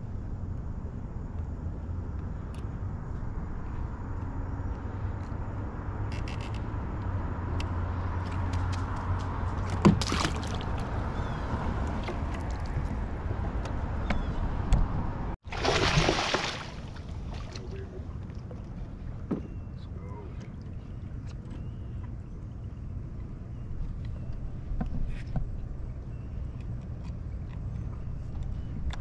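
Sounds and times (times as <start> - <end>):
low motor hum: 16.6 - 29.0.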